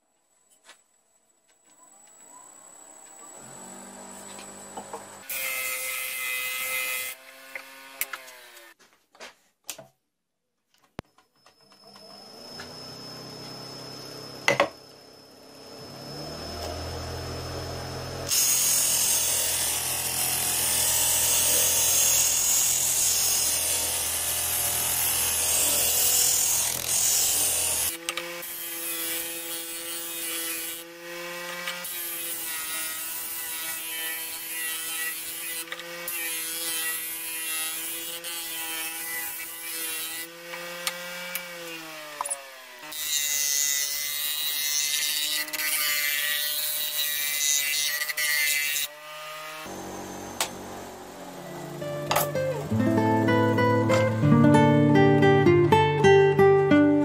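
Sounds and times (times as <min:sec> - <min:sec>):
electric motor humming: 0:02.0 - 0:06.0, 0:11.6 - 0:31.9, 0:49.6 - 0:53.7.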